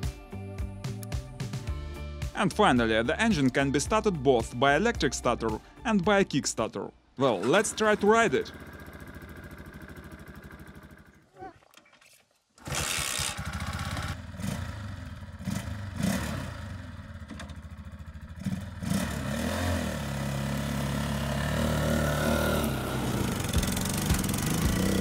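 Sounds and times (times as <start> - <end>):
trike engine running and revving: 7.4 - 11.2, 12.6 - 25.0.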